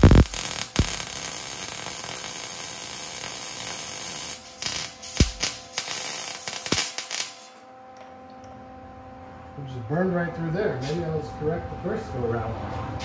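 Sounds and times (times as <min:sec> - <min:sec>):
sharp pops: 0:00.0 - 0:02.2, 0:04.6 - 0:07.4
welder arc hissing and crackling: 0:00.0 - 0:07.6.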